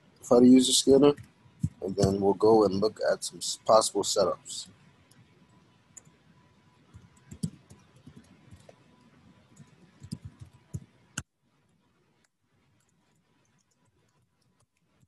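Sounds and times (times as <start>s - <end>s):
background hiss: 0.0s - 15.0s
faint clicks and light taps: 1.0s - 2.2s, 4.6s - 15.0s.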